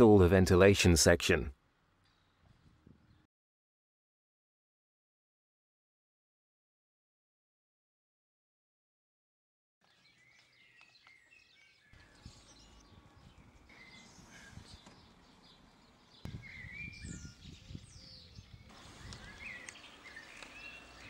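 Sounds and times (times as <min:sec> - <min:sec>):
small birds chirping: 0:09.8 - 0:21.0.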